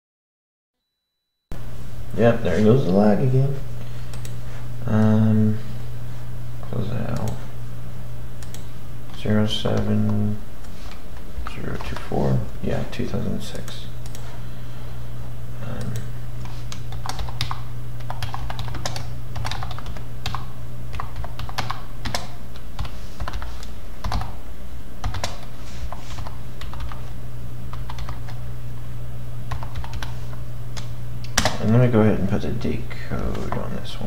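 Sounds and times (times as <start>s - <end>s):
steady low hum: 1.5s - 34.0s
computer keyboard typing: 11.5s - 12.1s, 15.7s - 24.4s, 25.0s - 27.0s, 27.7s - 28.4s, 29.5s - 30.2s, 30.8s - 31.7s.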